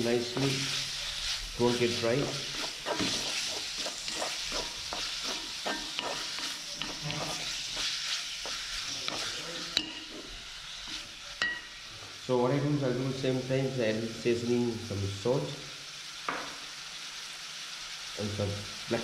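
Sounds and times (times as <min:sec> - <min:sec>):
food sizzling in oil: 0:00.0 - 0:19.0
wooden spoon scraping pan: 0:00.3 - 0:11.1.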